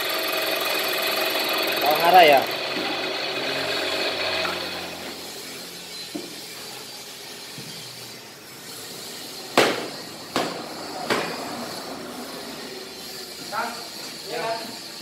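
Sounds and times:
sharp hard knocks with ring: 9.6 - 11.4.

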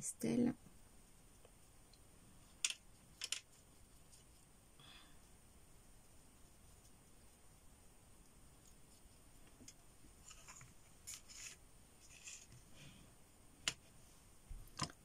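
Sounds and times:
paper scratching and rustling: 10.2 - 12.6.

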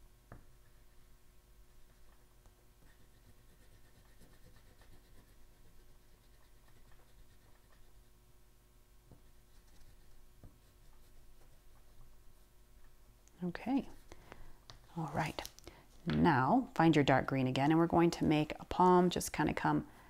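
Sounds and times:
pastel stick scratching on paper: 2.8 - 8.2, 9.2 - 12.1.

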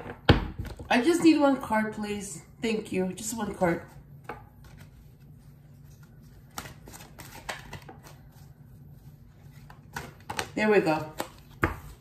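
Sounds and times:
cards being shuffled: 3.9 - 12.0.

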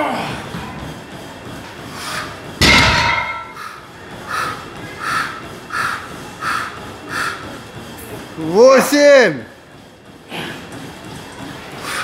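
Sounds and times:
puffs of breath: 1.8 - 2.4, 3.6 - 7.9, 11.7 - 12.0
barbell landing on floor: 2.6 - 3.6.

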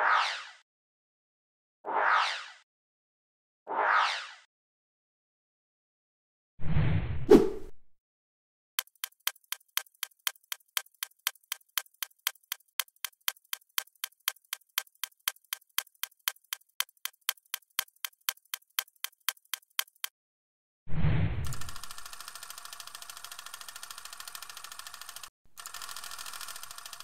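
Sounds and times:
sharp ticking: 8.8 - 20.1, 21.6 - 27.0.

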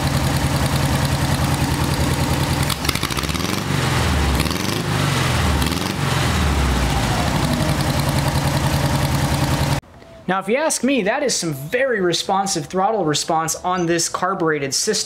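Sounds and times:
engine idling and revving: 0.0 - 9.8.

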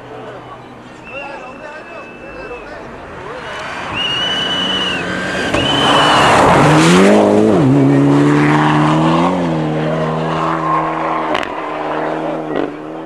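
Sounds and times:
rally car engine revving: 2.8 - 13.0.

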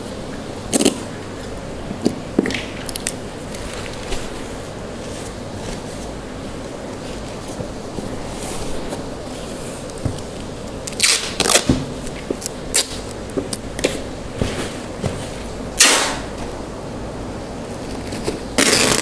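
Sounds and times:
packing tape ripping off roll: 10.8 - 14.0, 15.8 - 16.3, 18.0 - 19.0.

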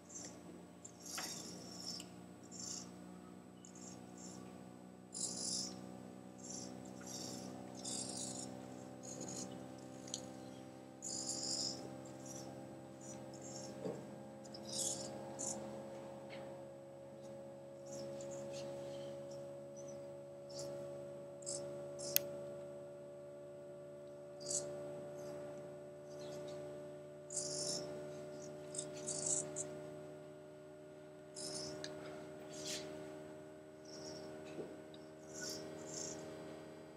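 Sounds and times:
steady hum of several tones: 0.0 - 36.9
servo motors whirring: 0.1 - 3.0, 5.1 - 13.8, 14.4 - 15.6, 27.3 - 29.7, 31.4 - 31.9.

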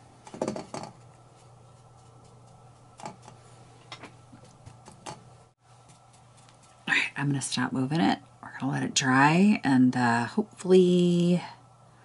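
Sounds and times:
steady low hum: 0.0 - 12.0
paintbrush tapping: 0.5 - 3.4, 5.8 - 6.9.

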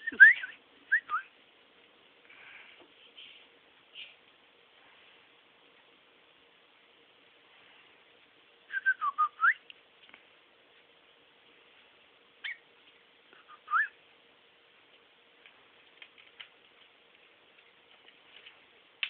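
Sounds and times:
cockatiel whistling: 0.0 - 1.3, 8.7 - 9.6, 12.4 - 12.6, 13.4 - 14.0
cockatiel chirp: 12.4 - 12.6.

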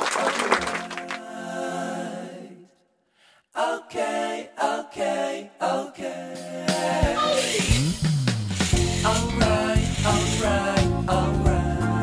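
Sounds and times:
music with singing voices: 3.6 - 12.0.

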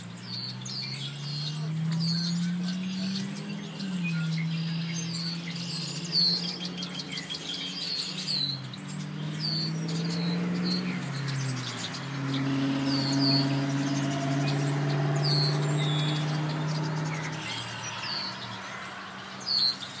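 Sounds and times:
birds chirping: 0.0 - 20.0
low motor hum: 8.2 - 19.4.

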